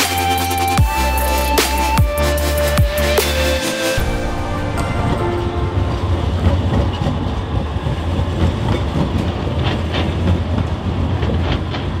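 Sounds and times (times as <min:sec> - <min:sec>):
tram wheels rumbling on rail: 0:04.0 - 0:12.0
wheels clicking on track: 0:06.5 - 0:12.0.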